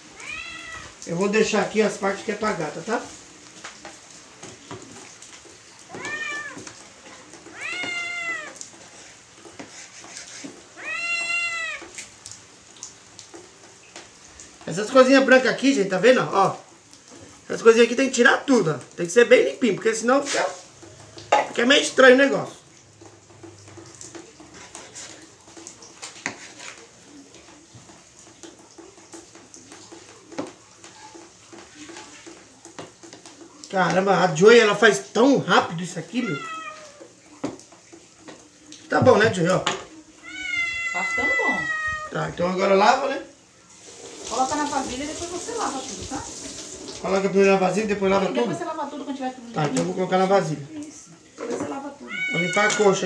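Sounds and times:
cat meowing: 0.1 - 1.0, 5.9 - 8.7, 10.7 - 12.0, 36.0 - 37.3, 40.1 - 42.4, 52.0 - 53.0
knife scraping on cutting board: 8.9 - 10.7, 26.0 - 26.8.

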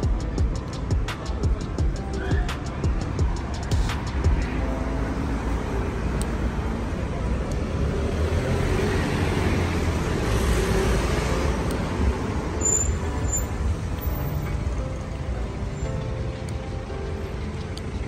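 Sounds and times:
road traffic rumble: 0.0 - 18.0
vehicle passing close: 3.7 - 14.0.

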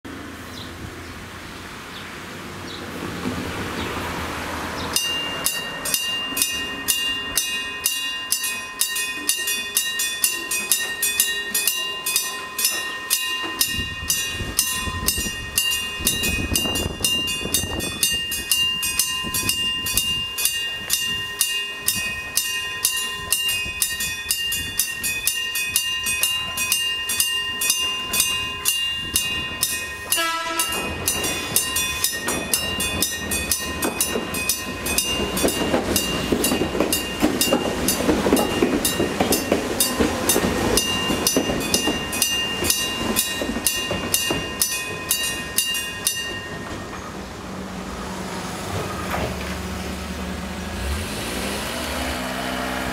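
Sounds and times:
passing train rumble: 0.0 - 52.9
level crossing bell ringing: 5.0 - 47.0.

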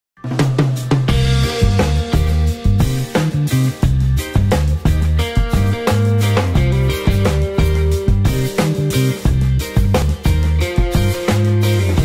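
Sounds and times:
drum hits: 0.2 - 11.4
bass line: 0.2 - 12.0.

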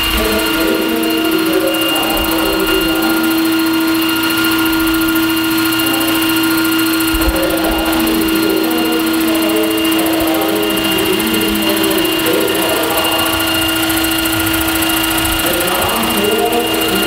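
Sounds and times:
model helicopter rotor whine: 0.0 - 17.0.

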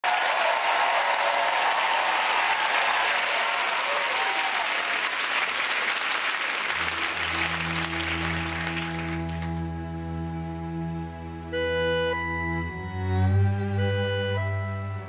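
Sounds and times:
audience applauding: 0.0 - 9.7
band playing held chords: 6.7 - 15.0.

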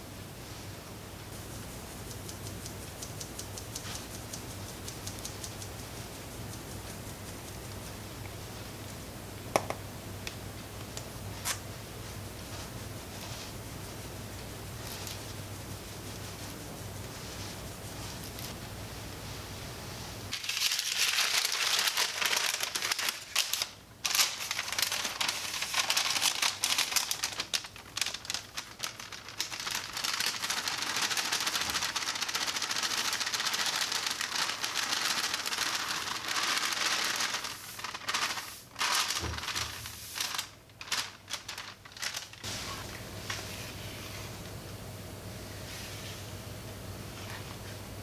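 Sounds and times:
powder sifting through metal sieve: 20.3 - 44.4.

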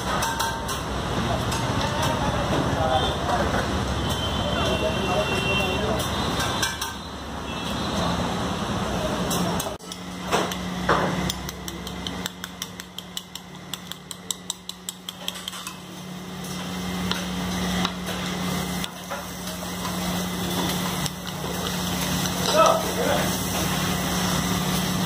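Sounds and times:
spoon beating eggs in bowl: 11.3 - 15.8.

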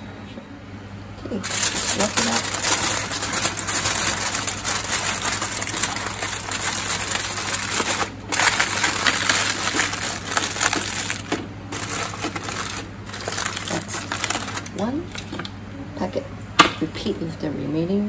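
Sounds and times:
aluminium foil crinkling: 1.3 - 15.5.

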